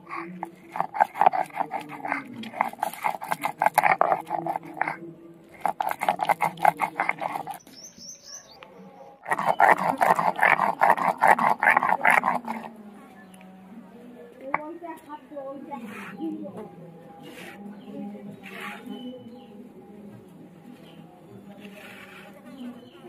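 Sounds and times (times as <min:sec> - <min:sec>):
stone roller grating on slab: 0:00.0 - 0:05.0, 0:05.6 - 0:07.6, 0:09.3 - 0:12.7, 0:21.5 - 0:22.6.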